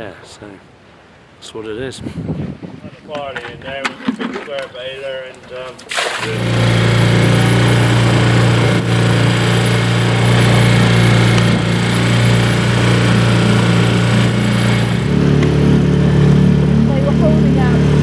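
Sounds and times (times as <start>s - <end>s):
outboard motor running: 6.1s - 18.0s.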